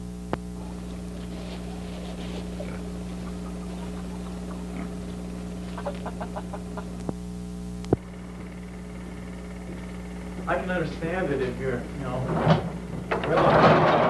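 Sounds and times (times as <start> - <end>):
low steady hum: 0.0 - 14.0
chickens clucking: 0.6 - 7.2.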